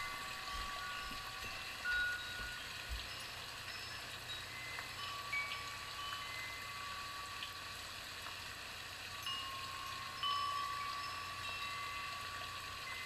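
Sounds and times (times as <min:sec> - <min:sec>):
soft high chime tones: 0:00.0 - 0:07.7, 0:09.2 - 0:13.0.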